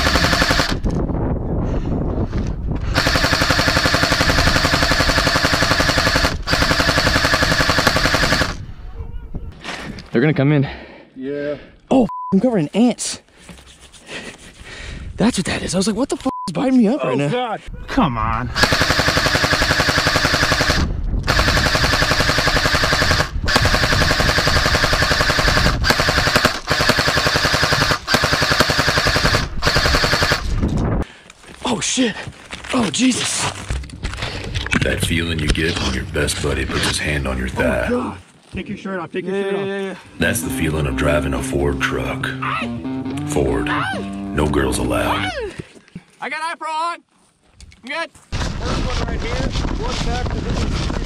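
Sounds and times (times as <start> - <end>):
airsoft gun firing full auto: 0.0 - 0.8, 3.0 - 8.6, 18.6 - 30.5.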